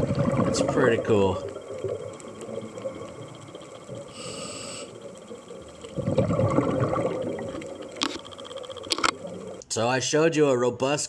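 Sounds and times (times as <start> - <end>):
exhaled air bubbling: 0.0 - 9.6
regulator inhalation hiss: 3.2 - 5.8.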